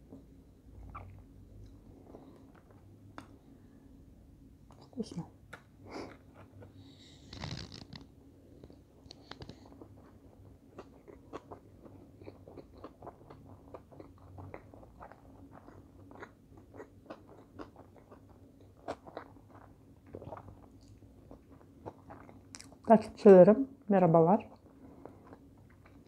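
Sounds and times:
person chewing food: 0:00.0 - 0:03.7, 0:05.5 - 0:22.9, 0:24.5 - 0:26.0.

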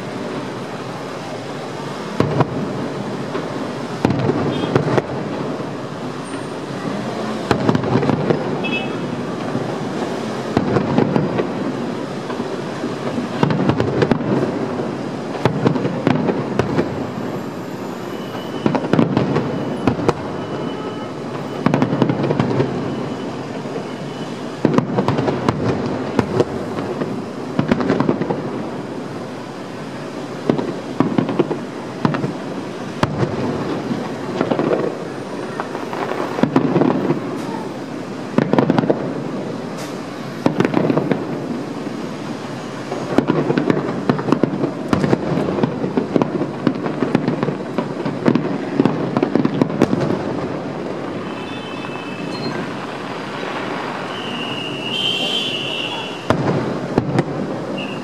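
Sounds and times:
firework shells bursting: 0:42.8 - 0:58.0.

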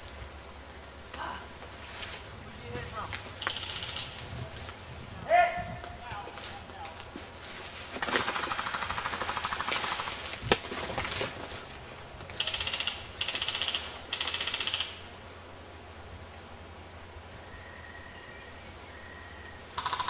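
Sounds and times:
airsoft guns firing bursts: 0:03.4 - 0:04.2, 0:08.0 - 0:10.3, 0:12.4 - 0:15.1, 0:19.8 - 0:20.0.

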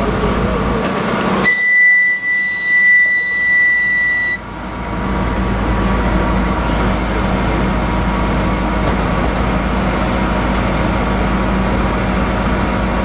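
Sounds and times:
locomotive rumble: 0:00.0 - 0:13.0
high locomotive whistle: 0:01.4 - 0:04.6.

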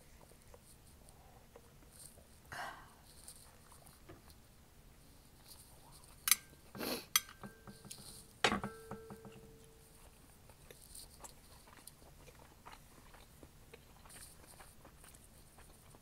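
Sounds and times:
soft chewing: 0:00.0 - 0:16.0
metal tongs clinking on plate: 0:06.3 - 0:06.6, 0:07.2 - 0:09.8.

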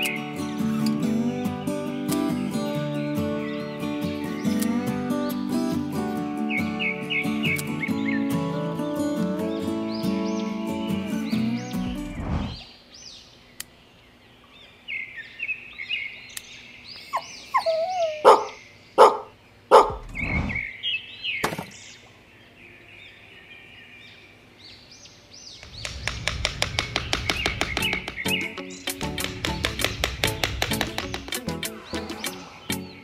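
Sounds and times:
music: 0:00.0 - 0:12.2, 0:27.4 - 0:33.0
small birds chirping: 0:00.0 - 0:33.0
sharp knocks: 0:25.6 - 0:32.4.

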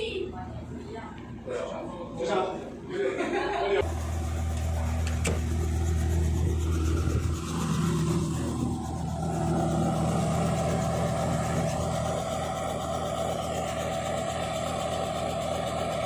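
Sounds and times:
helicopter engine running: 0:03.8 - 0:16.0.

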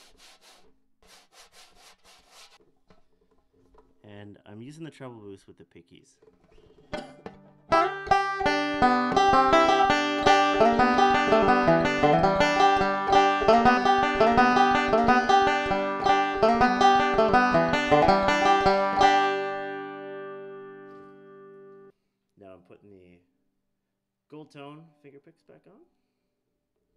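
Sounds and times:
banjo picked in fast runs: 0:07.7 - 0:20.3.

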